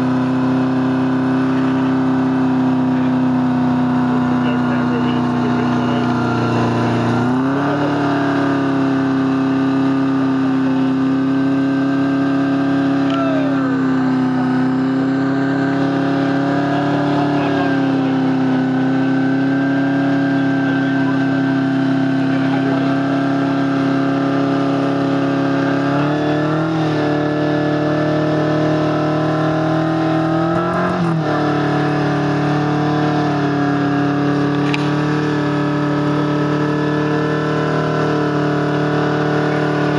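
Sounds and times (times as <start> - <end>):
buggy engine running under load: 0.0 - 39.9.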